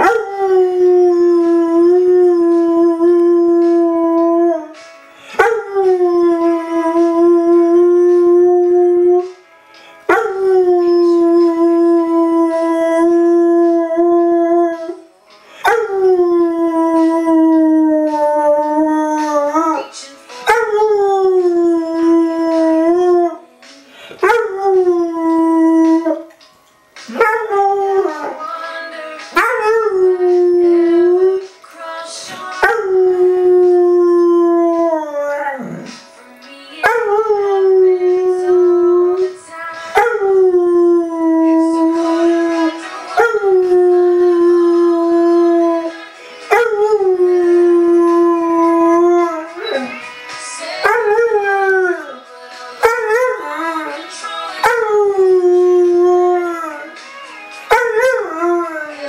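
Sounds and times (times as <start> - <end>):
country music: 0.0 - 59.0
dog howling: 52.8 - 57.0.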